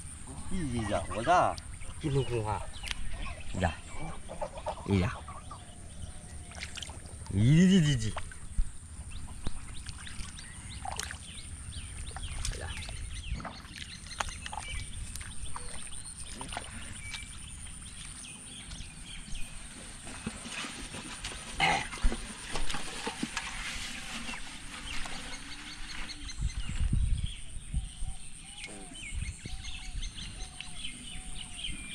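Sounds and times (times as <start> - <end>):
bird calls: 0.0 - 31.9
farmyard animal calls: 0.2 - 6.6
splashing in muddy water: 6.0 - 26.0.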